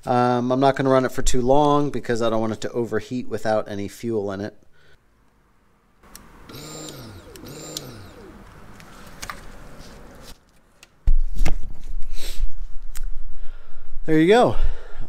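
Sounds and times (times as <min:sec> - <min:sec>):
fuel pump whirring: 0:06.0 - 0:10.0.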